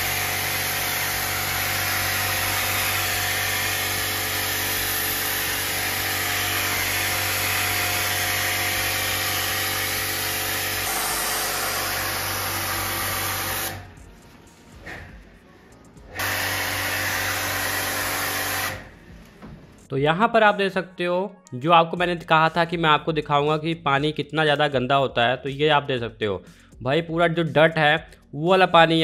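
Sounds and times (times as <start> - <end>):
pressure washer motor whining: 0.0 - 14.0, 16.0 - 19.4.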